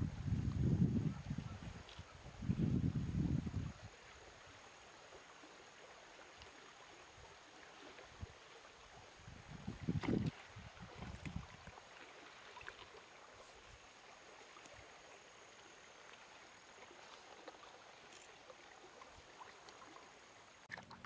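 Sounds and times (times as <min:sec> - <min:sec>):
faint stream trickling: 0:00.0 - 0:21.0
small ticks: 0:17.5 - 0:18.6.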